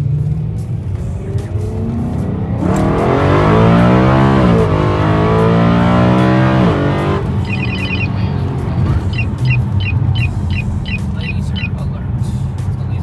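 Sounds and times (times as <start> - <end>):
car engine accelerating hard: 0.0 - 13.0
high electronic beeps: 6.8 - 11.8
short electronic chirps: 7.4 - 8.3, 9.0 - 11.7.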